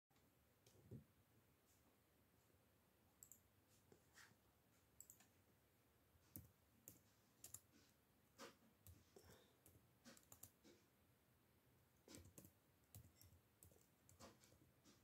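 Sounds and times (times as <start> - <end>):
computer mouse clicks: 3.2 - 3.4, 5.0 - 5.3, 6.3 - 7.7, 8.4 - 10.6, 12.0 - 14.5
keyboard keys clicking: 9.6 - 10.6, 12.1 - 14.3.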